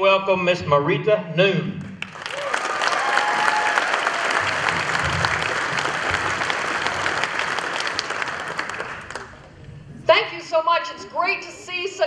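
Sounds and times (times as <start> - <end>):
crowd applauding: 1.9 - 9.6
crowd cheering: 2.0 - 9.6.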